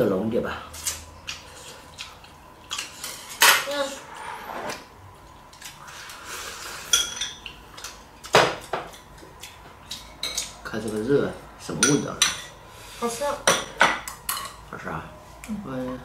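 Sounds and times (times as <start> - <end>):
spoons clinking against bowls: 6.8 - 7.9.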